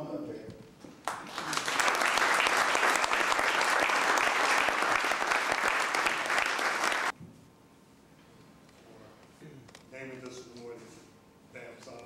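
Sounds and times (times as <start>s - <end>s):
audience applauding: 1.0s - 7.1s.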